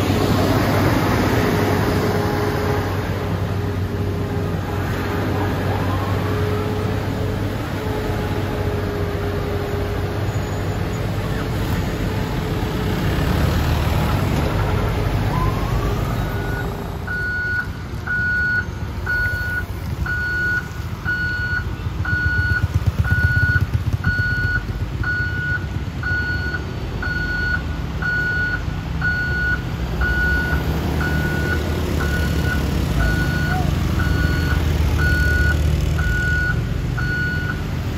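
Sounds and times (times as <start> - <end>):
truck reversing alarm beeping: 15.3 - 37.9.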